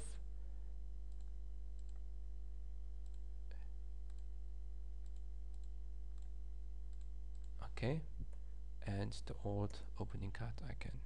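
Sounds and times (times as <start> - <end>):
low electrical hum: 0.0 - 11.0
computer mouse clicks: 1.1 - 2.0, 3.0 - 3.2, 4.1 - 4.3, 5.0 - 6.3, 6.9 - 7.6.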